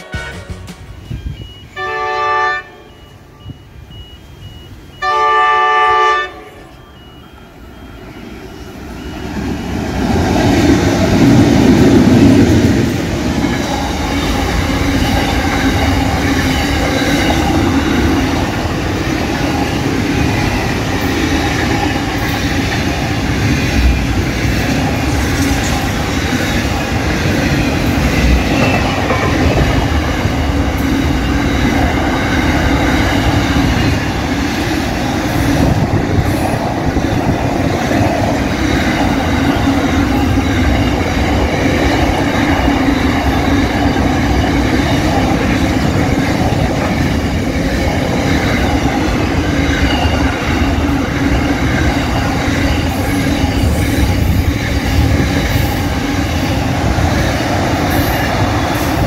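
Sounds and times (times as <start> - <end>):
train horn blasts: 0.0 - 3.4, 5.0 - 6.9
locomotives passing: 7.5 - 59.0.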